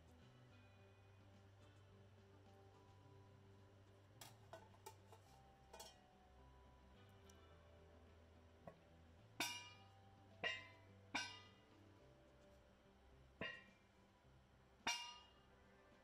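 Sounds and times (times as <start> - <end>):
soft background music: 0.0 - 16.0
metal pot lid clinking: 4.2 - 6.0, 9.4 - 9.8, 10.4 - 11.5.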